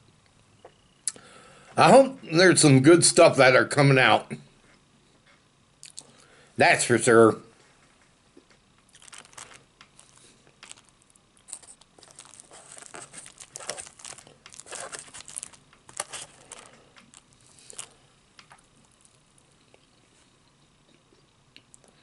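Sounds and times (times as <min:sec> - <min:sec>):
food packaging crinkling: 0:08.9 - 0:19.6.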